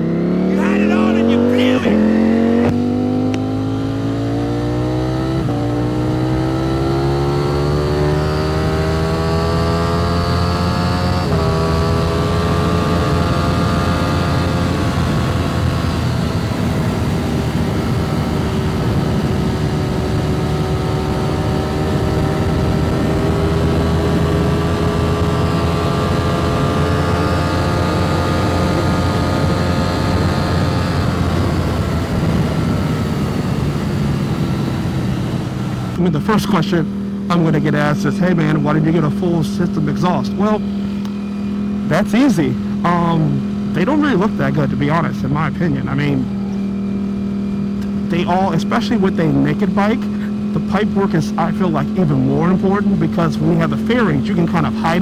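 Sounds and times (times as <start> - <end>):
motorcycle engine accelerating: 0.0 - 55.0
wind rumbling on microphone: 30.8 - 36.0.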